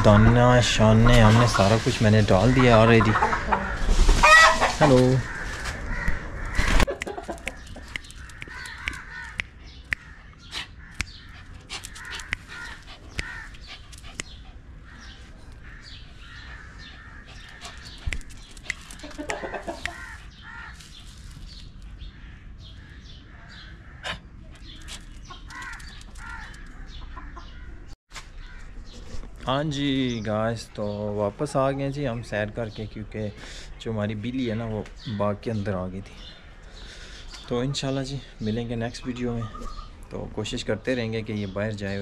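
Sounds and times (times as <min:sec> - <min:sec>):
chickens clucking: 0:00.0 - 0:22.1, 0:24.0 - 0:28.0.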